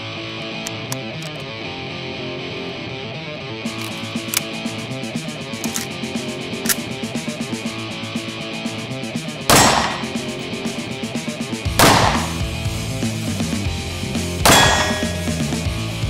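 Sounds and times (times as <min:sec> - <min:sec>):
background music: 0:00.0 - 0:16.0
pistol shots: 0:09.5 - 0:10.4, 0:11.8 - 0:12.5, 0:14.4 - 0:15.5.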